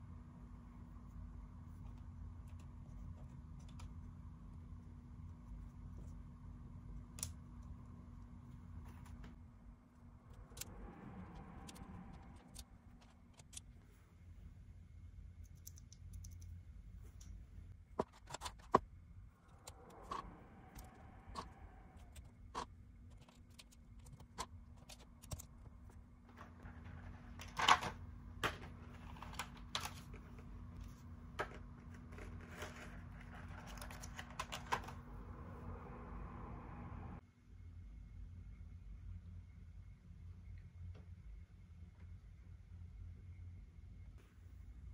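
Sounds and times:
soft handling and rubbing noise: 16.9s - 35.8s.

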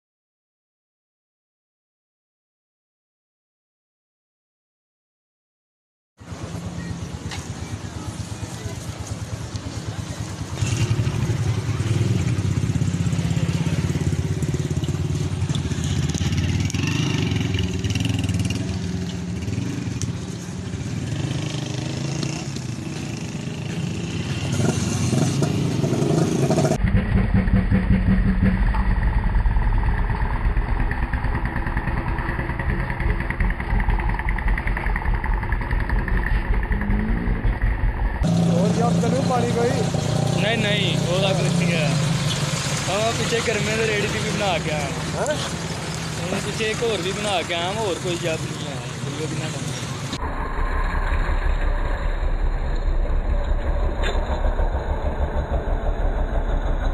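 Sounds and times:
motorcycle engines rumbling: 6.2s - 56.9s
deep heavy engine rumble: 26.7s - 56.9s.

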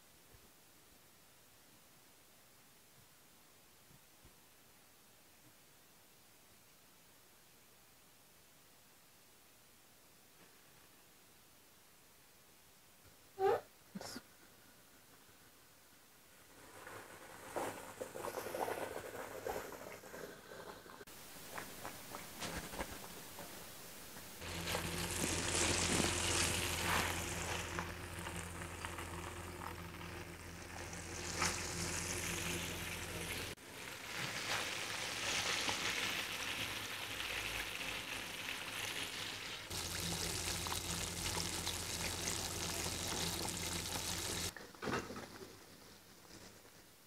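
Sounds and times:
low hum: 22.6s - 33.6s, 39.7s - 44.5s
chicken deep-frying in oil: 24.3s - 45.9s.

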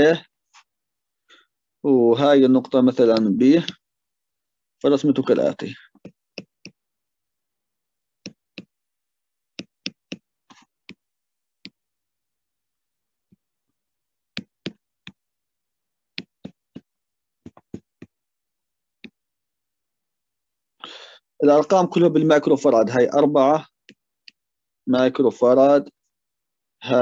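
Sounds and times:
stylus clicking on a tablet: 3.0s - 3.9s, 5.9s - 6.8s, 8.2s - 8.8s, 9.5s - 11.8s, 14.3s - 15.3s, 16.1s - 18.2s.

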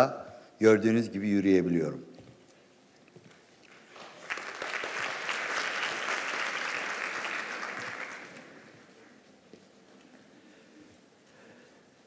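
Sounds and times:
audience applauding: 3.7s - 8.9s.

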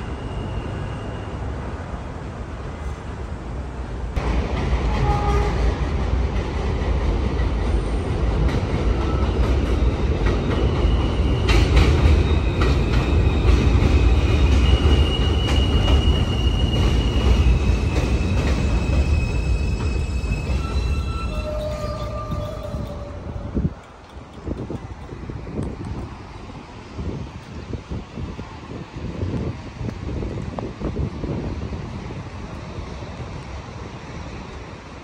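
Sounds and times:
train wheels rumbling on rails: 0.0s - 35.0s
high-pitched wheel squeal: 10.5s - 23.6s.

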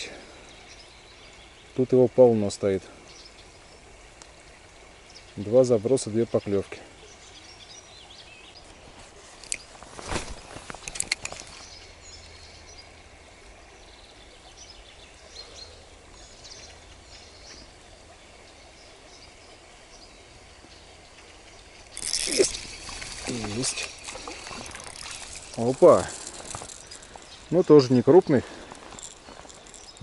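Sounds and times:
bird chirps: 18.6s - 30.0s
loud rustling: 21.9s - 30.0s.

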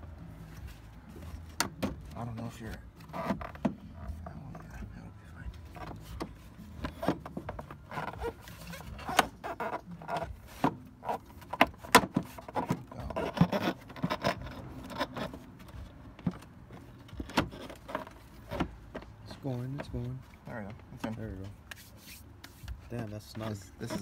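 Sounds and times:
plastic airbox scraping in engine bay: 5.7s - 15.7s.

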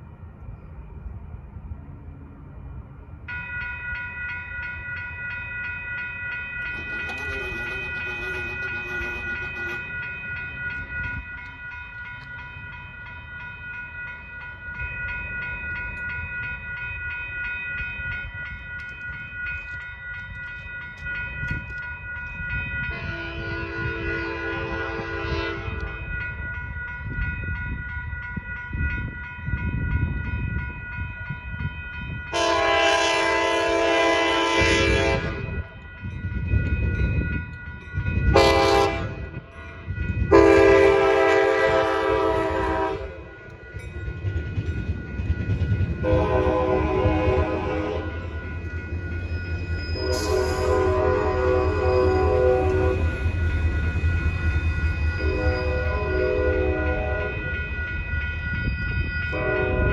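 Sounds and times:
crossing warning bells ringing: 0.0s - 59.9s
train rumble: 0.0s - 59.9s
train horn blasts: 6.8s - 9.9s, 22.9s - 26.0s, 32.3s - 35.5s, 38.3s - 43.2s, 46.0s - 48.3s, 50.0s - 53.0s, 55.2s - 57.4s, 59.3s - 59.9s.

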